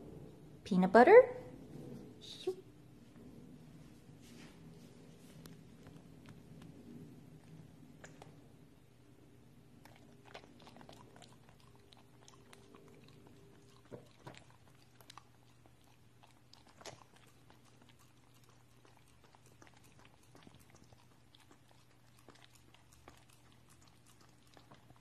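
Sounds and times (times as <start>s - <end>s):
dog licking and chewing: 4.9s - 8.4s, 9.7s - 25.0s.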